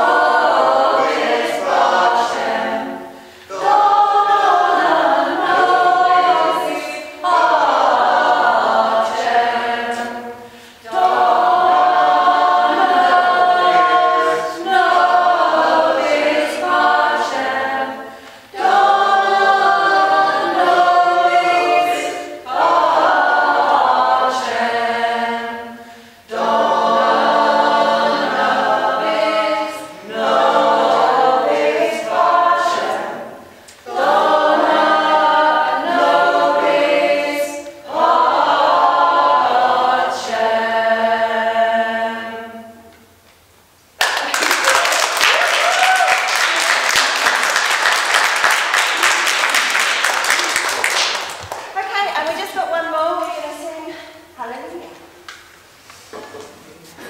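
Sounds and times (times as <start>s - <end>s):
choir singing a cappella: 0.0s - 43.2s.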